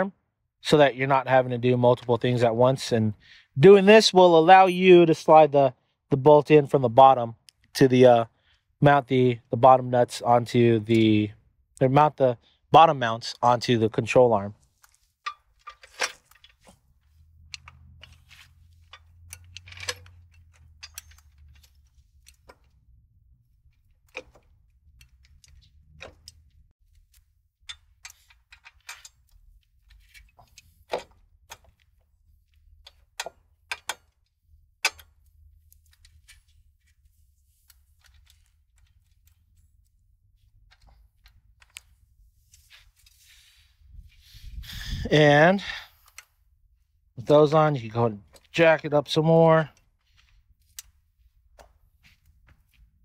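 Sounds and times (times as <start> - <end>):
metallic clicks of bolts and tools: 14.8 - 23.0, 23.6 - 43.3.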